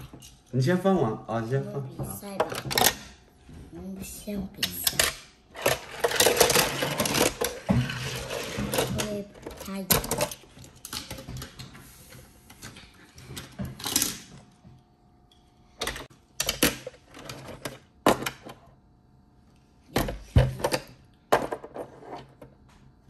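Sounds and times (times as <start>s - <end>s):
toy cars rattling on plastic track: 4.8s - 10.4s.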